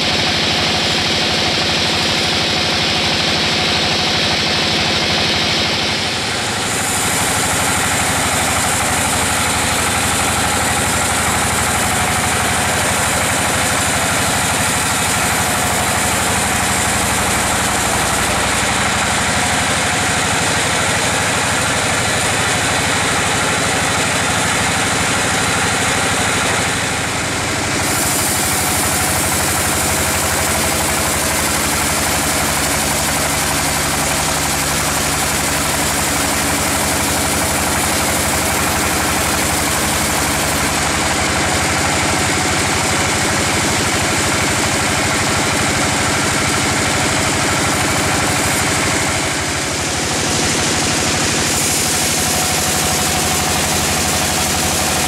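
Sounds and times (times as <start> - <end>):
bandsaw sawing through log: 6.6 - 18.4, 27.7 - 42.2, 47.5 - 55.0.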